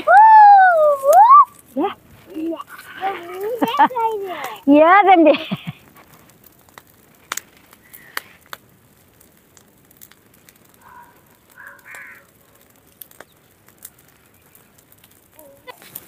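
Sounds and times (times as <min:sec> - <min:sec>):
dry brush fire crackling: 0:00.0 - 0:16.0
crow cawing: 0:10.8 - 0:12.5.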